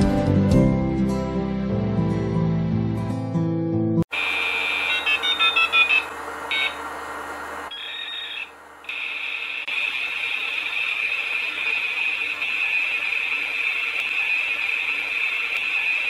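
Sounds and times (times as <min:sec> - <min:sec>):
high-pitched electronic tone: 0:04.2 - 0:06.8.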